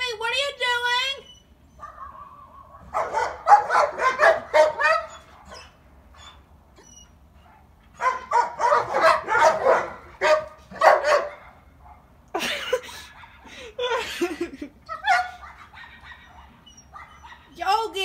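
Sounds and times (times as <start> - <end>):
dogs barking: 1.8 - 6.4, 7.4 - 12.2, 13.0 - 14.1, 14.9 - 17.6.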